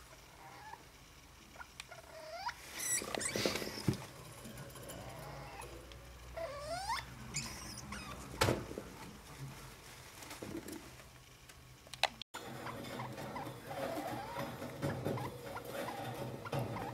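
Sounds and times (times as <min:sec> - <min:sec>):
squeaky rodent call: 0:06.4 - 0:08.2
rustling in paper bedding: 0:08.9 - 0:11.0.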